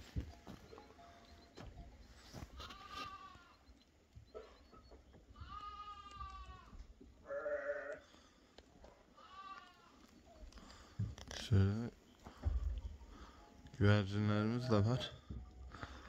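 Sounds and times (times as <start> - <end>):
sheep bleating: 2.4 - 3.6, 5.3 - 8.0, 9.2 - 10.0.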